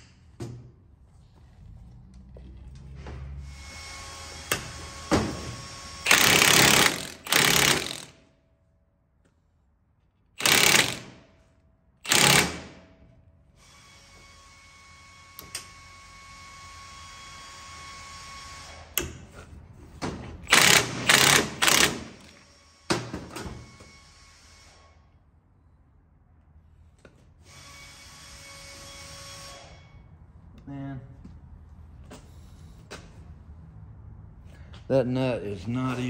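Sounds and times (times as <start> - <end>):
impact wrench hammering: 4.5 - 8.2, 10.4 - 11.2, 12.0 - 12.9, 20.4 - 23.3.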